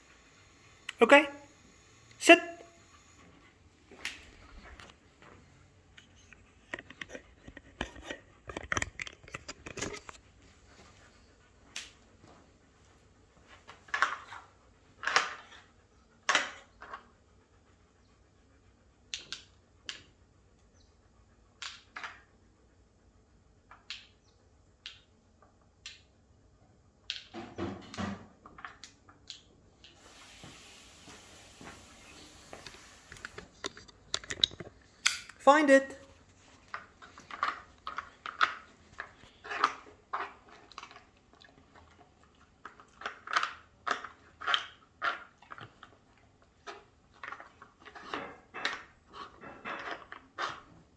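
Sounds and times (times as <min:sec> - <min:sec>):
wooden pegs knocking and clicking: 0:33.6 - 0:35.4.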